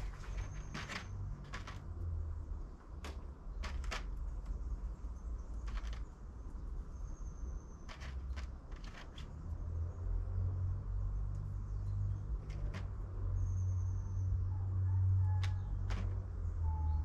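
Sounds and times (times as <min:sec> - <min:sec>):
plastic trays clicking and tapping: 0:00.0 - 0:02.1, 0:02.9 - 0:06.3, 0:07.8 - 0:09.4, 0:12.3 - 0:13.0, 0:15.4 - 0:16.4.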